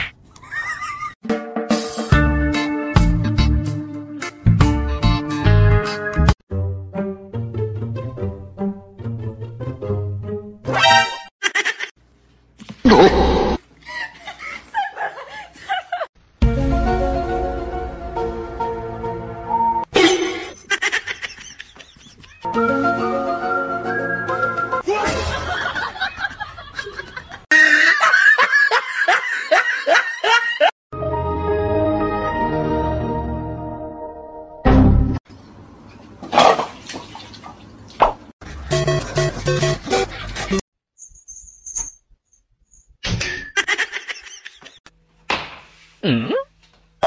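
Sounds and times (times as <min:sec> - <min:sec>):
snickering laughter: 0:00.4 - 0:01.2, 0:20.0 - 0:22.5, 0:24.9 - 0:30.7
background music: 0:01.2 - 0:11.3, 0:16.4 - 0:19.9, 0:22.5 - 0:24.8, 0:30.9 - 0:35.2.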